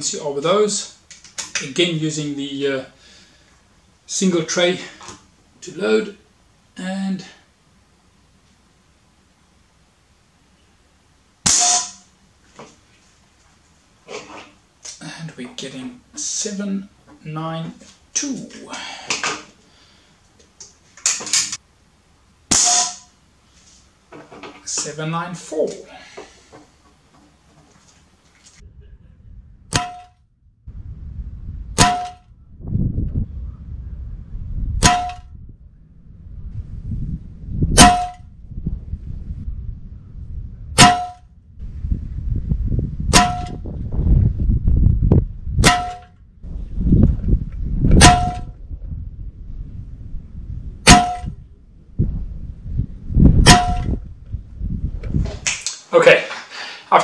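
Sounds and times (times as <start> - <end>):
air rifle shots: 11.4 - 12.0, 22.5 - 23.0
pellets striking metal trap: 11.4 - 12.1, 22.5 - 23.1, 29.7 - 30.1, 31.8 - 32.2, 34.8 - 35.2, 37.8 - 38.2, 40.8 - 41.2, 43.1 - 43.6, 45.6 - 46.1, 48.0 - 48.5, 50.9 - 51.3, 53.5 - 53.9
low rumble: 28.5 - 55.4.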